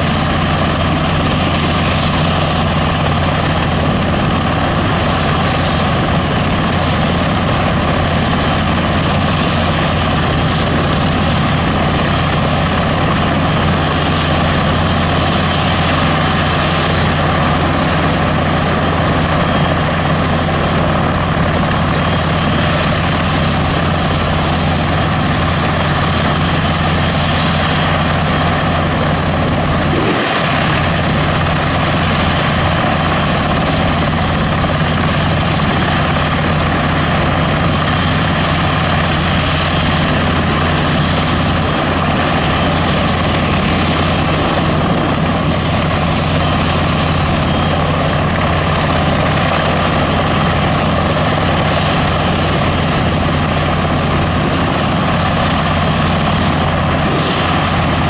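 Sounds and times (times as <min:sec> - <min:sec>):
helicopter rotor and engine: 0:00.0 - 0:58.0.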